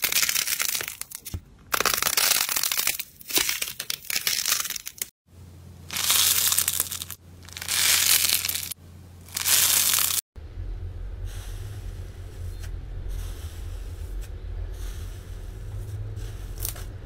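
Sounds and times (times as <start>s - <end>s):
low hum: 10.4s - 17.0s.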